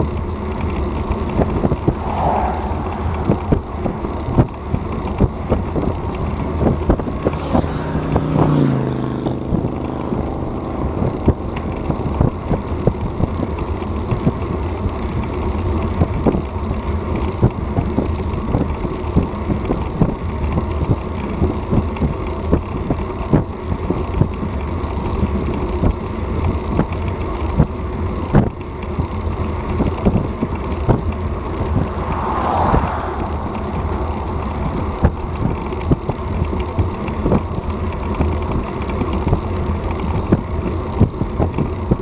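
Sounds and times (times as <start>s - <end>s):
road rumble: 0.0s - 42.0s
wind on microphone: 0.7s - 14.4s, 29.8s - 37.6s.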